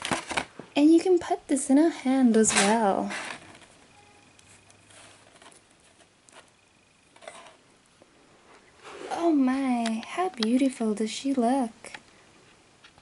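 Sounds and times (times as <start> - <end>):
plastic toy handling rustle: 0.0 - 0.6, 2.1 - 7.6.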